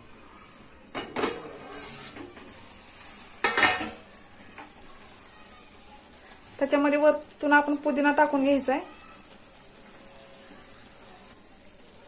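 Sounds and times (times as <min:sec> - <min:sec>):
rice sizzling: 0:00.0 - 0:12.0
metal lid clanking on pan: 0:00.9 - 0:02.4, 0:03.4 - 0:04.0.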